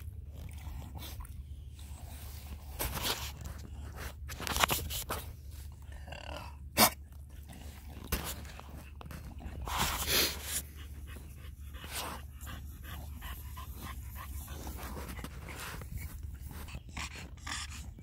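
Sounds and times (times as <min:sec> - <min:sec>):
dog panting: 0:09.2 - 0:18.0.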